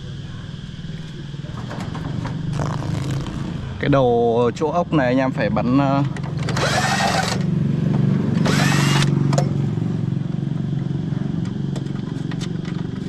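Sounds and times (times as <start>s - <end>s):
low mechanical hum: 0.0s - 13.0s
cordless drill whirring: 6.5s - 7.4s, 8.4s - 9.1s.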